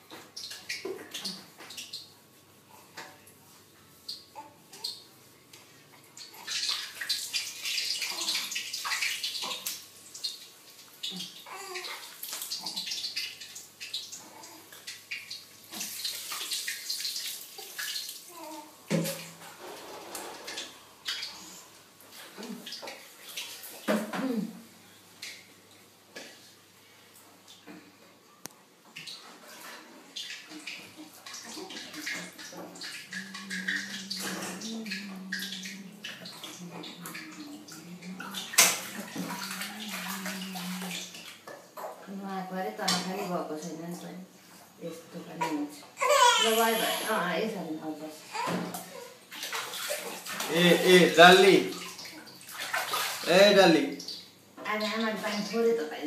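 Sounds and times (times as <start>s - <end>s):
water splashing on tiled floor: 6.2s - 25.5s, 29.0s - 42.1s, 48.3s - 55.8s.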